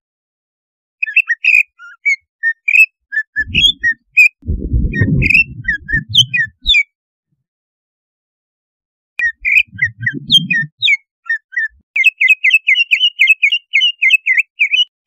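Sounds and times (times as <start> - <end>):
bird whistled chirps and trills: 1.0 - 6.9, 9.2 - 15.0
low rumble: 3.4 - 6.7, 9.4 - 10.7.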